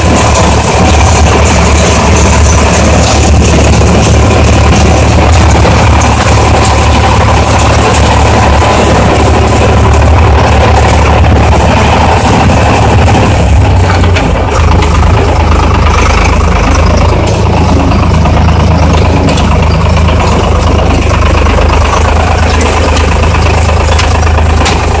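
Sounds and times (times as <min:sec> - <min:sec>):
tractor engine drone: 0:00.0 - 0:25.0.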